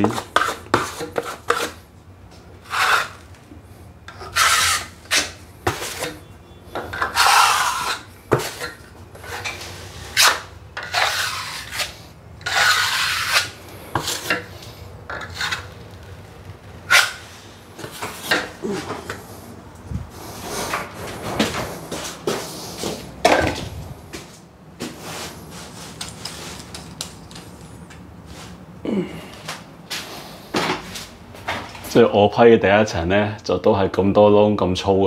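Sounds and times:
putty knife scraping filler: 0:00.0 - 0:01.8, 0:02.6 - 0:03.2, 0:04.1 - 0:15.7, 0:16.9 - 0:19.3.

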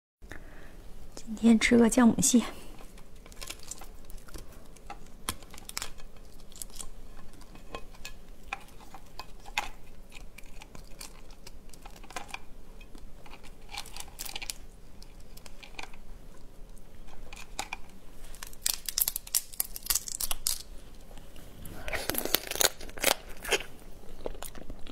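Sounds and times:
crab shell cracking: 0:02.9 - 0:20.7, 0:22.0 - 0:24.9
wet tearing: 0:18.4 - 0:20.7, 0:21.9 - 0:23.7.

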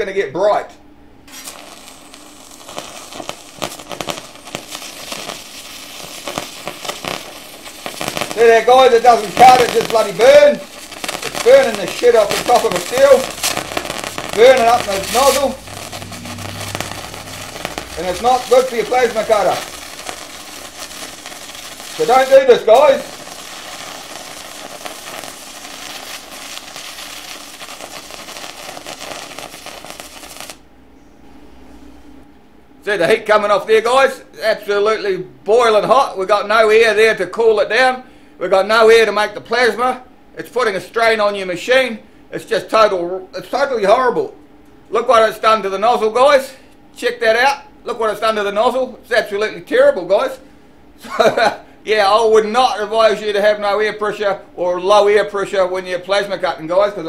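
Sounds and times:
steady hiss: 0:01.3 - 0:30.6
plasma arc crackling and popping: 0:01.3 - 0:30.7.

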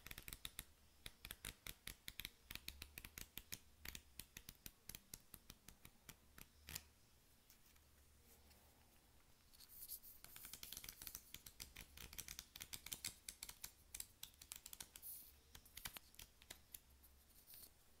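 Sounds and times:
flip book pages flicking: 0:10.2 - 0:16.8.

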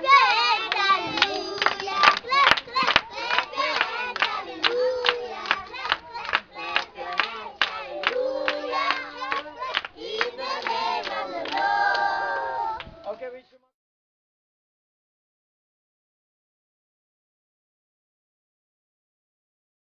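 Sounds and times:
children singing: 0:00.0 - 0:13.0
hands clapping in rhythm: 0:00.0 - 0:13.2.

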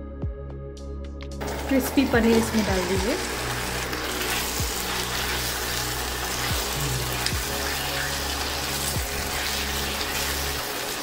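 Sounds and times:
sauce sizzling and bubbling: 0:01.4 - 0:11.0
spatula stirring: 0:03.9 - 0:11.0.

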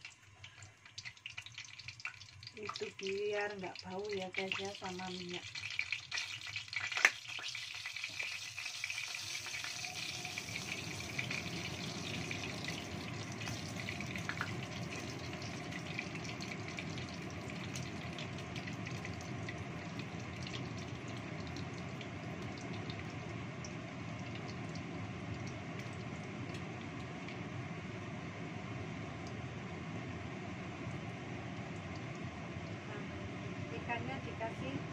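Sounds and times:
oil sizzling in a wok: 0:00.0 - 0:34.9
extractor fan running: 0:09.2 - 0:34.9.

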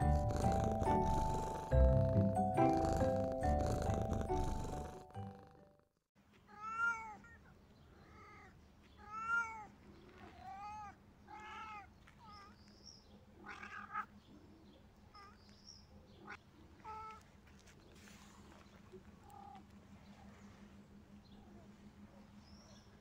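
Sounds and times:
intro music: 0:00.0 - 0:05.5
cats yowling: 0:08.0 - 0:09.7, 0:10.3 - 0:12.6, 0:13.4 - 0:14.1.

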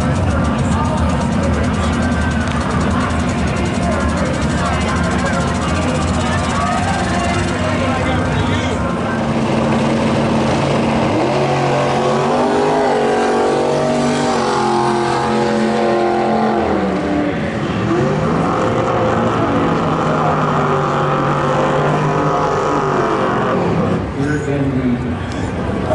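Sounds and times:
race car engines revving: 0:00.0 - 0:25.9.

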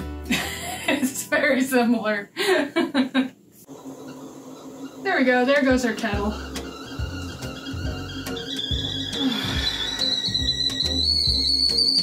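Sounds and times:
kettle whistling: 0:03.7 - 0:12.0.

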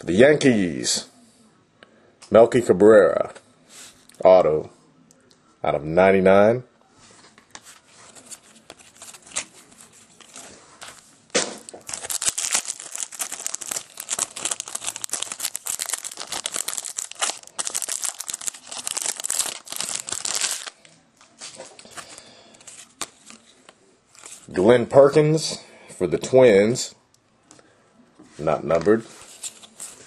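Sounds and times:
soft handling noises: 0:06.8 - 0:24.6, 0:27.4 - 0:30.0
foil wrapper tearing and crinkling: 0:11.7 - 0:20.9.

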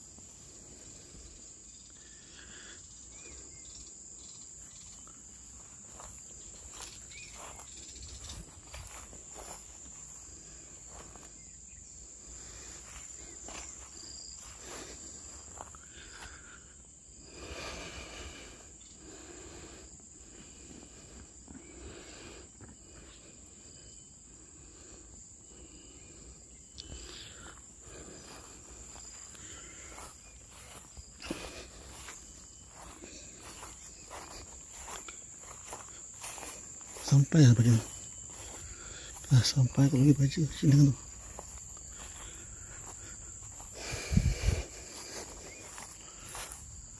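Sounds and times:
insect chorus: 0:00.0 - 0:46.9.

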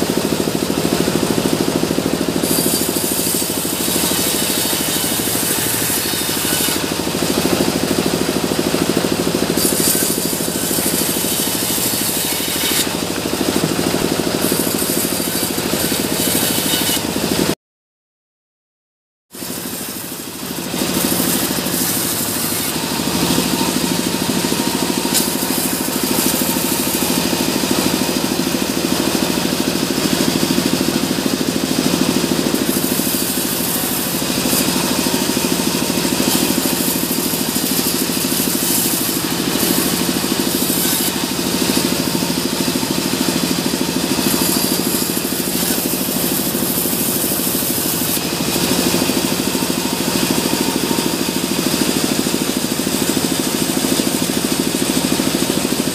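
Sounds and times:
bandsaw drone: 0:00.0 - 0:17.6, 0:19.4 - 0:55.9
blade hissing through log: 0:02.0 - 0:17.1, 0:19.4 - 0:28.9, 0:32.0 - 0:51.9.

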